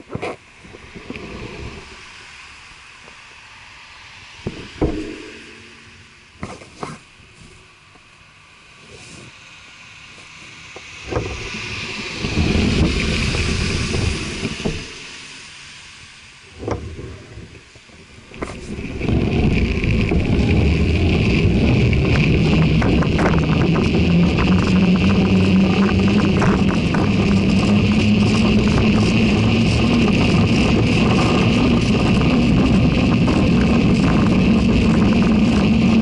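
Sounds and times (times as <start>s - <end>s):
wind noise on microphone: 0.0s - 2.4s, 10.8s - 36.0s
bicycle tyre rumble: 0.0s - 36.0s
car passing by: 8.8s - 17.4s.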